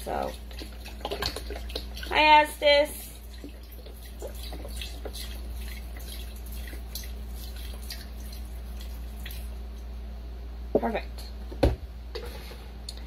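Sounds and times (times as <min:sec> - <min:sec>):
broth pouring and splashing: 0:00.0 - 0:09.9.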